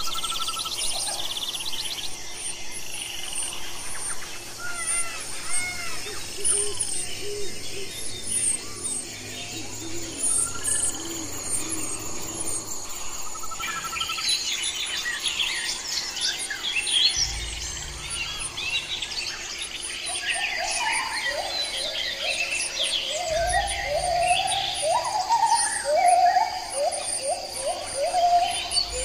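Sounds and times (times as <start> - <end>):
high insect-like trilling: 15.8 - 29.0
nestlings chirping: 22.6 - 29.0.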